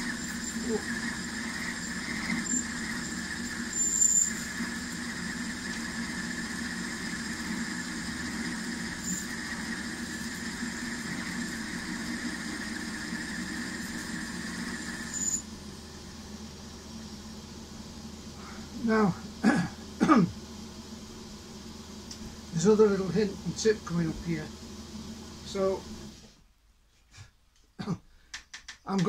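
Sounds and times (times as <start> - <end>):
metal lathe running: 0.0 - 15.5
high cutting whine: 0.0 - 26.3.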